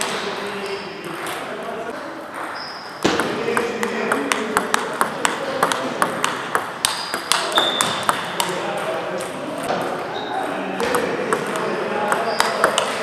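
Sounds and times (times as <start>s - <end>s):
distant table tennis clicks: 2.3s - 9.8s, 10.8s - 13.0s
table tennis ball clicking: 3.1s - 8.6s, 10.8s - 13.0s.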